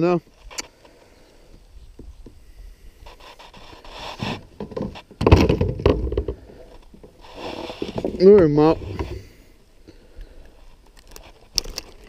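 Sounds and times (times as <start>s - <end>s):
gear scraping kayak hull: 3.0s - 9.6s.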